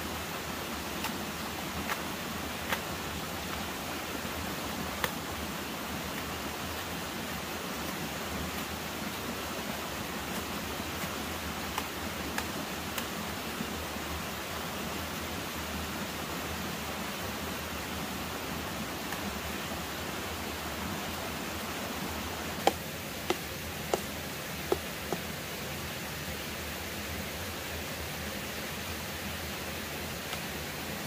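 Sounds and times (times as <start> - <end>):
rushing water: 0.0 - 31.0
machete striking tree trunk: 4.9 - 5.3, 22.6 - 25.3.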